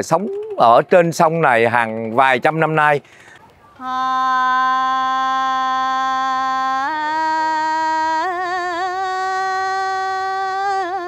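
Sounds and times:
woman singing unaccompanied: 0:03.7 - 0:11.0.

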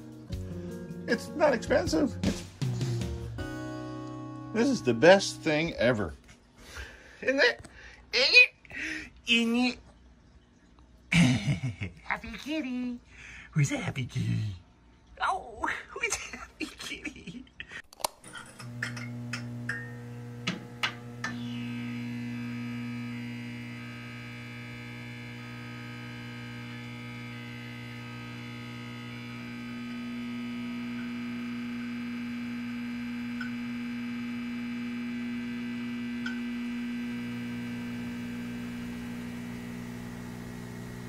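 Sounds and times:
steady electronic hum: 0:04.5 - 0:07.5, 0:18.3 - 0:41.0.

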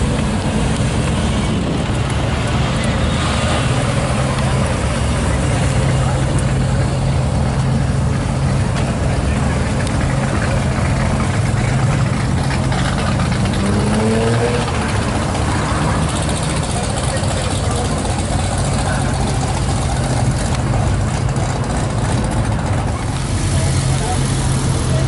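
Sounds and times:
car engine at low revs: 0:00.0 - 0:25.0.

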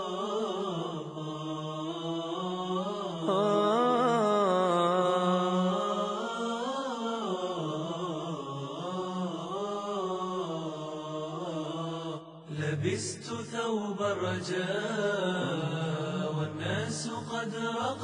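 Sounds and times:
man chanting wordless melody: 0:12.5 - 0:18.0.

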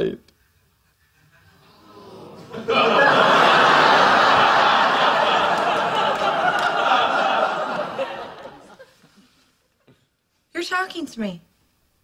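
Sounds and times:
studio audience laughing: 0:01.5 - 0:09.3.

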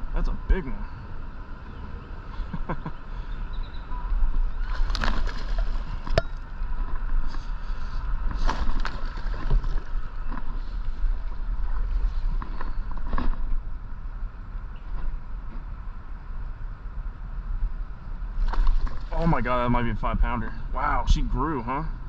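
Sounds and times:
steady low rumble: 0:00.0 - 0:22.0
water sloshing around kayak: 0:04.3 - 0:13.5, 0:18.4 - 0:19.5
sharp fish splashes: 0:04.6 - 0:06.4, 0:18.4 - 0:19.2.

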